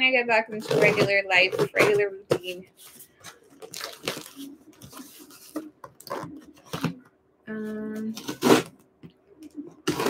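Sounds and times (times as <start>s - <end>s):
scissors cutting cardboard: 0.5s - 2.5s, 8.0s - 8.8s.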